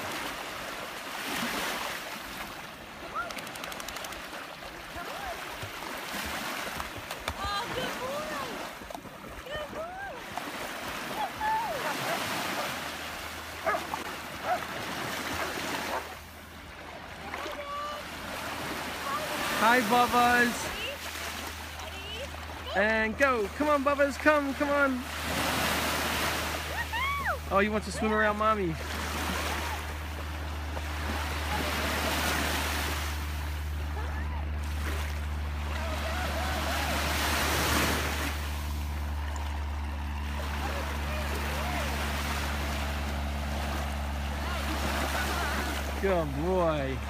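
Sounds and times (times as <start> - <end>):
sea surf washing at shore: 0.0 - 47.0
water lapping and splashing: 0.0 - 47.0
steady low rumble: 26.2 - 47.0.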